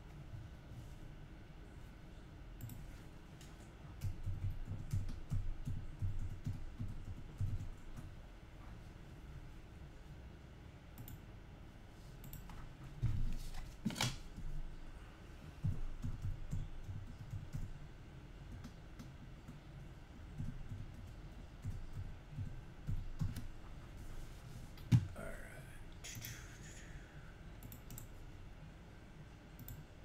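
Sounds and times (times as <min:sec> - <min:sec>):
computer keyboard typing: 0:03.4 - 0:08.1, 0:15.6 - 0:17.7, 0:18.5 - 0:19.6, 0:20.3 - 0:23.5, 0:27.6 - 0:28.2.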